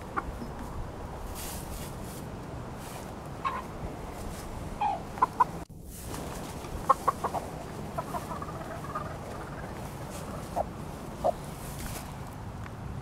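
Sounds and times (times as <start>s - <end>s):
hens clucking: 0.0s - 0.9s, 3.0s - 11.8s.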